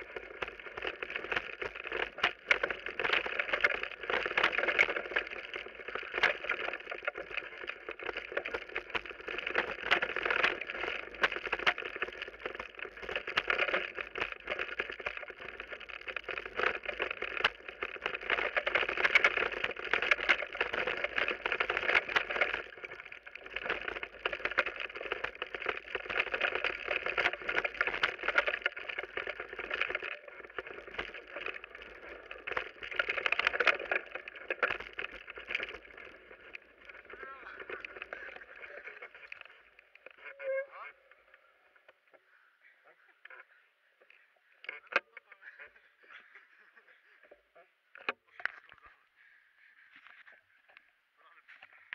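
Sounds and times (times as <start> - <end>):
bike rattling over bumps: 0.0 - 40.8
bike tyres on dirt: 0.0 - 40.9.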